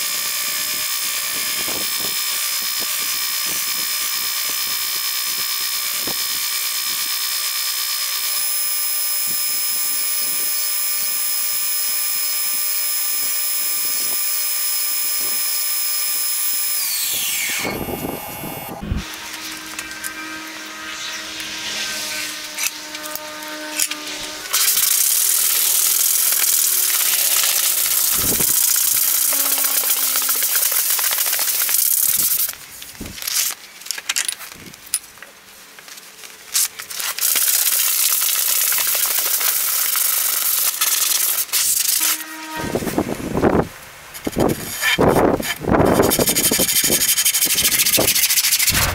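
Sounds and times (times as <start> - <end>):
scattered scrapes: 18.8 - 32.5, 44.1 - 48.9
abrasive cloth sanding wood: 18.9 - 32.5, 44.2 - 48.9.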